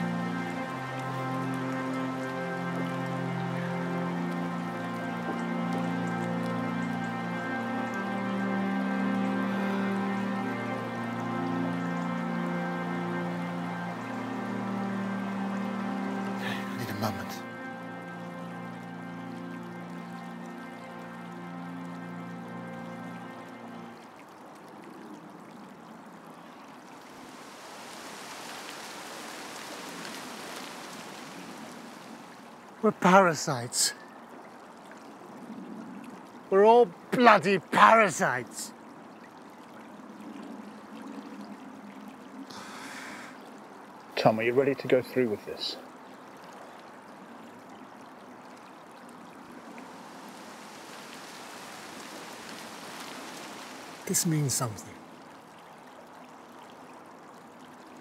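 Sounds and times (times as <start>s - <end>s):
sustained music: 0.0s - 25.1s, 36.5s - 38.7s, 49.4s - 55.2s
stream water flowing: 0.0s - 58.0s
outdoor ambience rushing noise: 26.5s - 32.9s, 49.4s - 54.2s.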